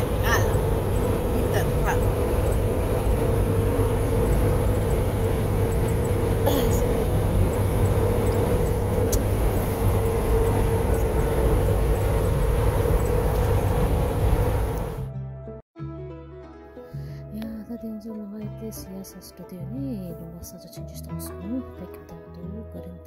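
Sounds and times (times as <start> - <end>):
car road noise low rumble: 0.0 - 15.1
steady cabin hum: 0.0 - 15.1.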